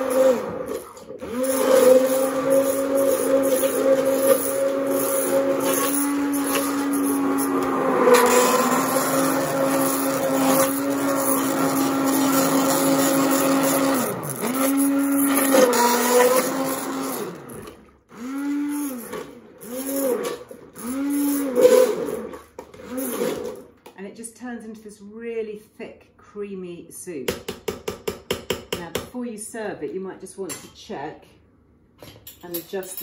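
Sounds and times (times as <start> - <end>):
stick blender whirring: 0.0 - 23.9.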